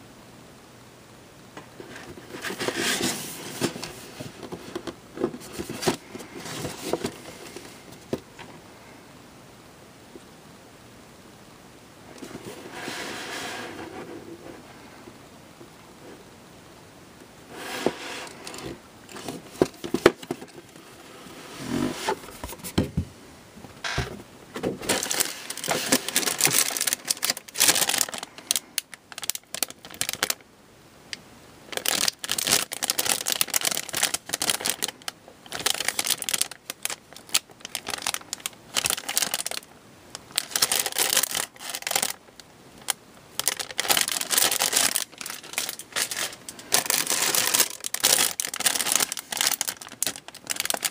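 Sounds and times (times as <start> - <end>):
plastic bags crinkling: 24.8 - 30.4, 31.7 - 50.9.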